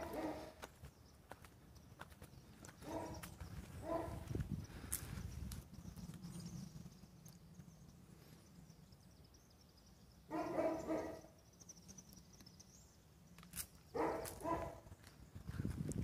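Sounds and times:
dog barking: 0.0s - 0.6s, 2.8s - 3.2s, 3.8s - 4.3s, 10.3s - 11.3s, 14.0s - 14.8s.

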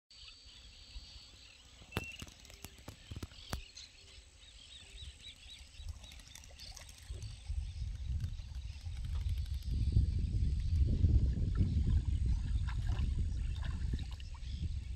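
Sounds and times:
small birds chirping: 0.1s - 14.9s
wind rumbling on microphone: 5.0s - 14.9s.

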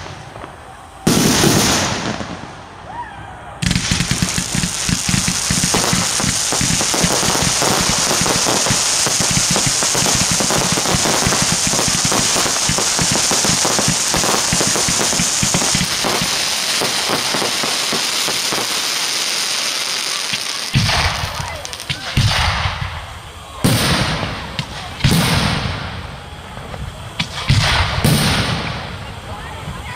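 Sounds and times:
fireworks crackling and popping: 0.0s - 2.9s, 3.6s - 29.9s
deep thumps of firework shots: 3.6s - 18.7s, 20.3s - 26.0s, 26.6s - 29.0s.

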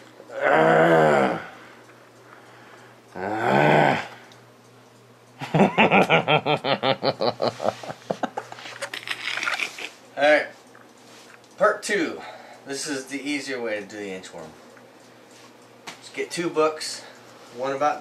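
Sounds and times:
man groaning with strain: 0.3s - 1.6s, 3.2s - 4.2s
man laughing in rapid pulses: 5.4s - 9.9s.

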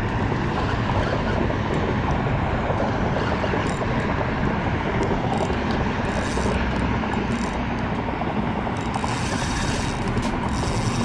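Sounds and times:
wind on microphone: 0.0s - 11.0s
fishing reel cranking: 2.8s - 11.0s.

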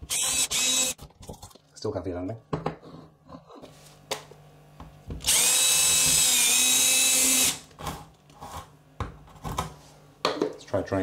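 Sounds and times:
cordless drill boring through wood: 0.0s - 1.0s, 5.2s - 7.6s.

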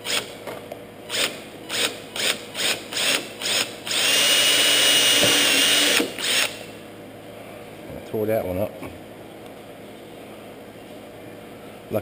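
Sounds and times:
cordless drill boring into wood: 1.1s - 6.6s.

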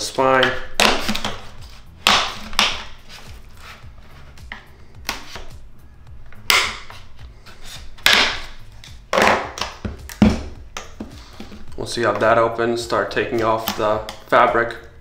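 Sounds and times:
plastic casing snapping loose: 0.4s - 1.4s, 2.0s - 3.0s, 6.3s - 7.0s, 8.0s - 11.0s.

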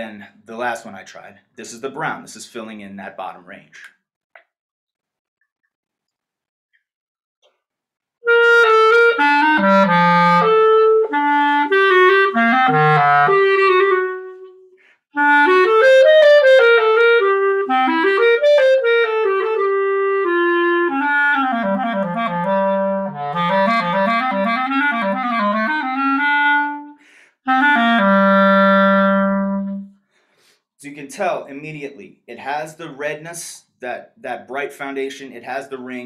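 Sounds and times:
solo clarinet melody: 8.2s - 30.0s.

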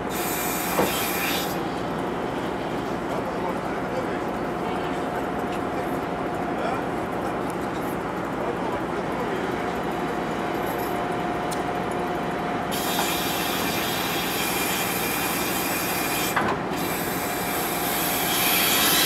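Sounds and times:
mooring winch running: 6.8s - 19.0s
hiss: 12.8s - 14.8s.

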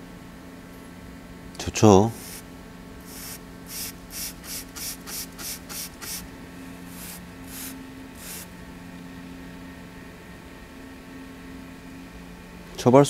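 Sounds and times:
spray bottle squirting water: 2.2s - 2.4s, 3.0s - 6.3s, 6.9s - 8.5s.

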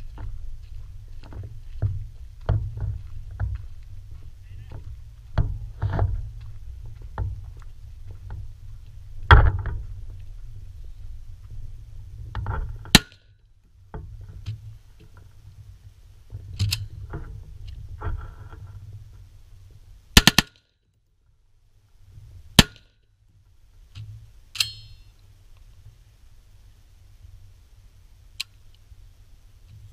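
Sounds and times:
footstep rumble: 0.0s - 29.9s
rifle metallic clacks: 20.2s - 20.7s, 22.6s - 22.9s, 24.6s - 25.1s.

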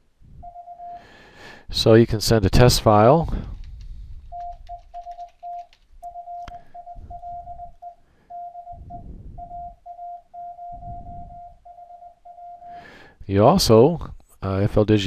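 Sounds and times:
morse code tone: 0.4s - 1.1s, 4.3s - 12.8s.

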